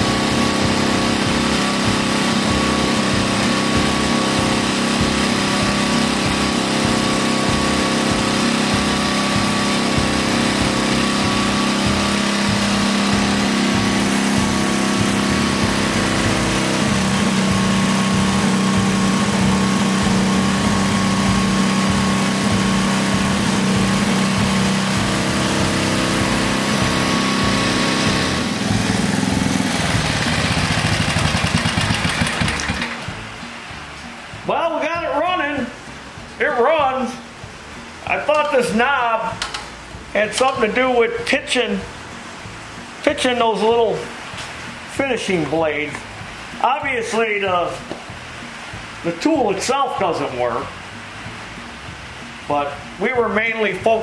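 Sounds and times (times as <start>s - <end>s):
small engine running: 0.0s - 33.4s.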